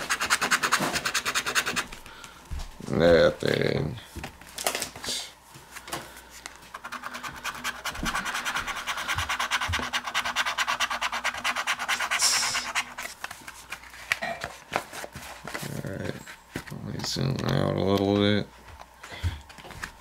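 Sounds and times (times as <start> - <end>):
lottery ticket being scratched: 0.0 - 1.9, 6.7 - 13.2.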